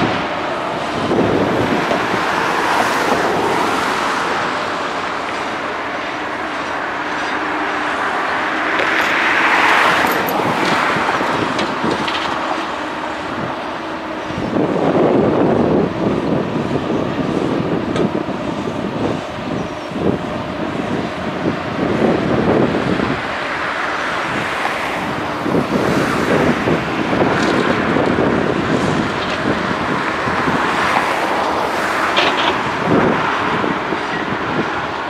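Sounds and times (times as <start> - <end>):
diesel engines running: 0.0 - 35.0
excavator digging: 0.0 - 35.0.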